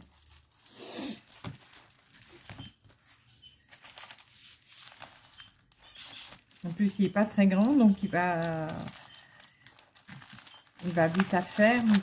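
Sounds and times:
plastic sleeve crinkling: 0.0s - 12.0s.

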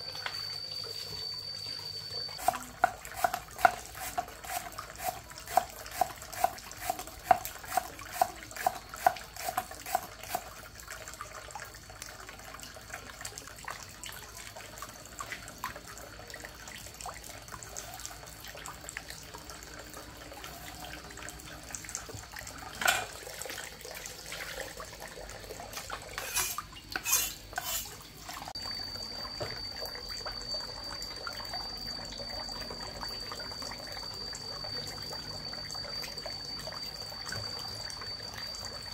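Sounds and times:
high-pitched tone: 0.0s - 3.1s
running water: 0.0s - 38.9s
dishes clinking and clattering: 22.7s - 23.2s.

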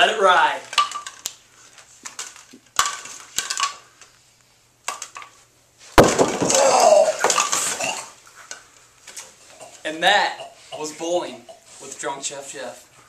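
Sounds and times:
pins clattering: 0.6s - 1.3s, 2.1s - 4.0s
sharp knocks: 6.0s - 6.8s
bowling ball crashing into pins: 6.0s - 8.1s.

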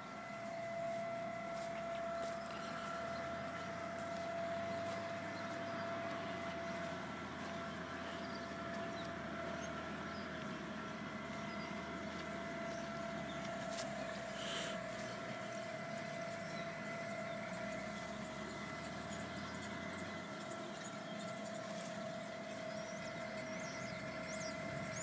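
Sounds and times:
low drone: 0.0s - 25.0s
mechanical hum with whine: 0.0s - 25.0s.

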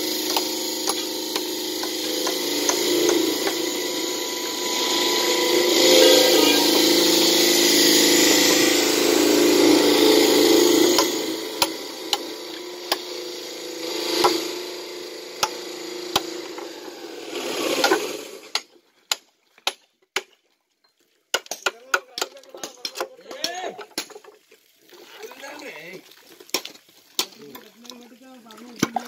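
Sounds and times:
machine running loudly: 0.0s - 18.5s
hammer knocking stone slab edges: 0.3s - 3.6s, 21.4s - 24.2s.

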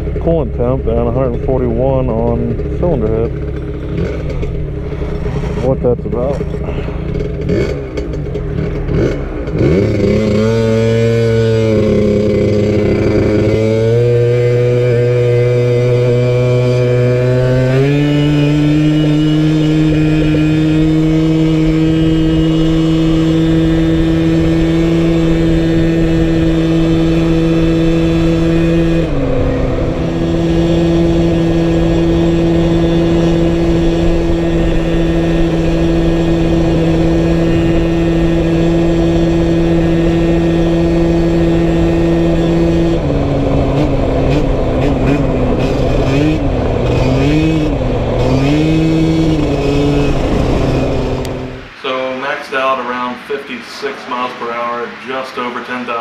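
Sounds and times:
scooter engine running: 0.0s - 51.8s
wind noise on microphone: 16.1s - 53.2s.

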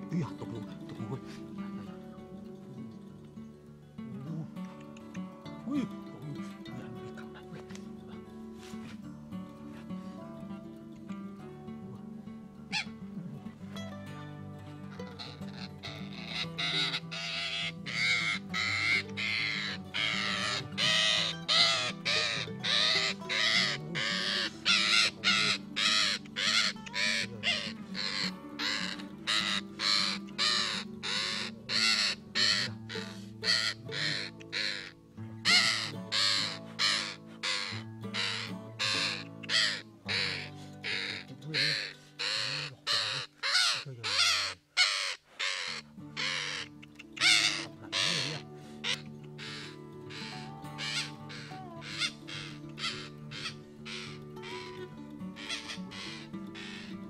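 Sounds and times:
soft background music: 0.0s - 43.3s, 45.9s - 57.0s
parakeet screeching harshly: 15.2s - 46.6s, 47.2s - 54.8s, 55.4s - 56.9s.

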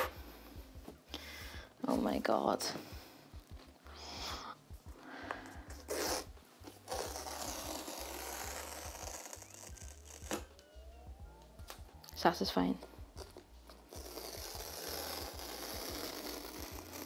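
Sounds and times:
cardboard tear strip ripping: 5.9s - 10.6s, 13.2s - 17.0s.

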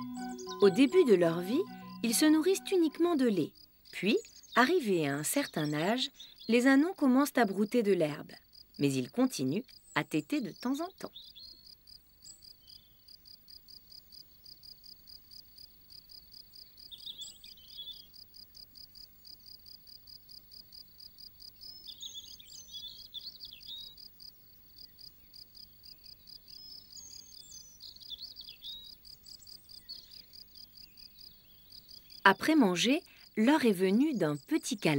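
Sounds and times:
bird song: 0.0s - 8.2s, 8.8s - 19.6s, 21.4s - 34.9s
cricket chirping: 7.4s - 34.9s.

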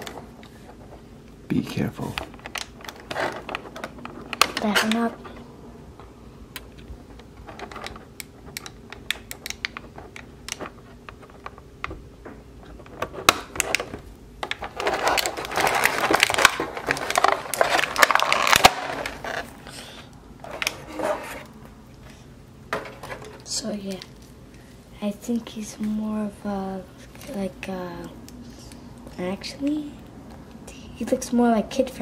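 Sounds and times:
plastic tray crinkling and crackling: 0.0s - 5.5s, 6.6s - 21.6s.

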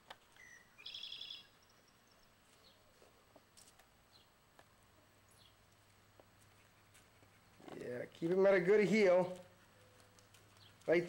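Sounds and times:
faint high chirps: 0.3s - 2.8s
bird trill: 0.4s - 2.2s.

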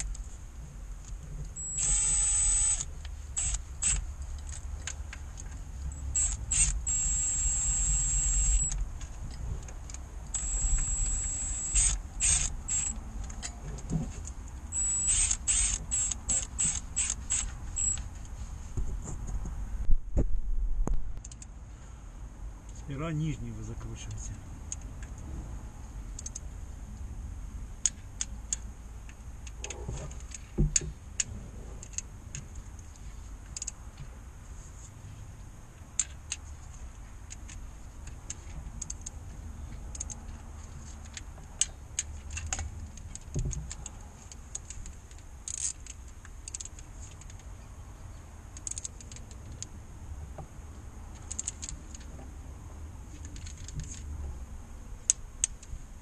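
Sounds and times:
low background rumble: 0.0s - 56.0s
hand ratchet clicking: 1.6s - 5.0s, 6.0s - 8.8s, 10.3s - 13.5s, 14.7s - 18.0s.

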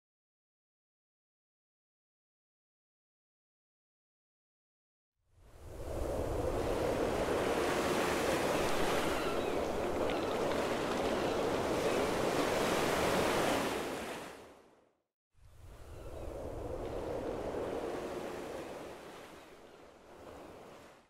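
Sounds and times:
wind rumble: 5.6s - 13.4s, 15.6s - 18.6s
sea water washing: 6.1s - 14.3s.

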